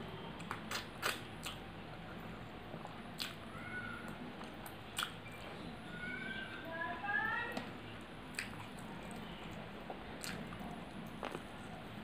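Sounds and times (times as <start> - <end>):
person chewing with lip smacks: 0.4 - 2.0, 2.8 - 3.4, 4.4 - 5.2, 8.3 - 11.8.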